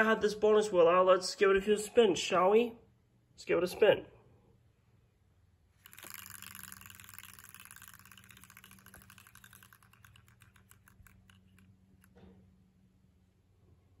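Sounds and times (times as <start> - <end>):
prize wheel clicking as it spins: 5.8 - 12.1.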